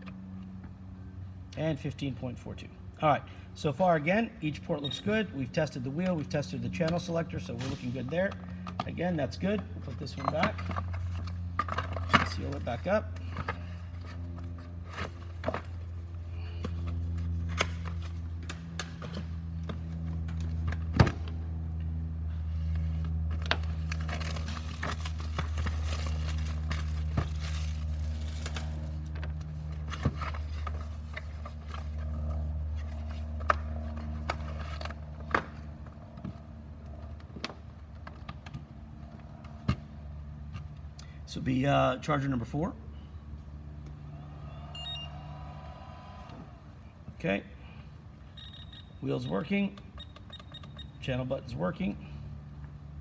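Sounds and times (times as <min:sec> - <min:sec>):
steady low hum: 0:00.0 - 0:53.0
packaging crinkling: 0:23.7 - 0:29.0.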